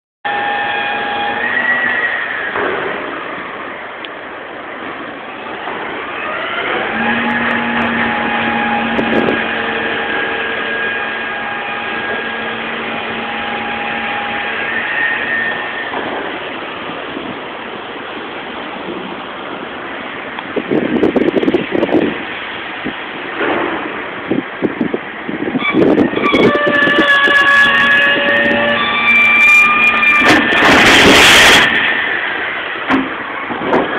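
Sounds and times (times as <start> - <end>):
steady rush of noise: 0.3 - 33.9
vehicle motor running: 2.6 - 24.6.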